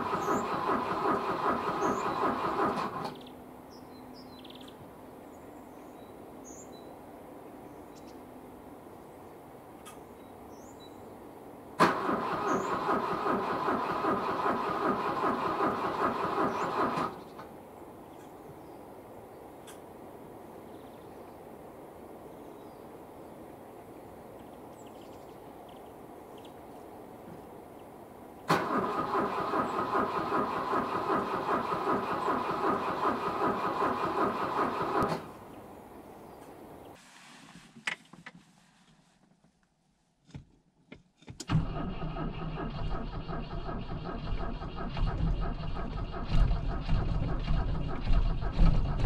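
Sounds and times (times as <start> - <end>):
car engine cranking by starter: 0.0 - 3.3, 11.8 - 17.5, 28.5 - 35.5, 41.4 - 49.0.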